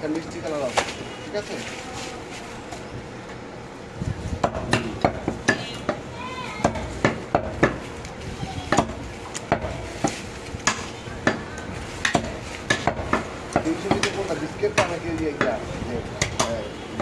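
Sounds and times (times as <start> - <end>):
cleaver chopping on wooden block: 8.7 - 15.6.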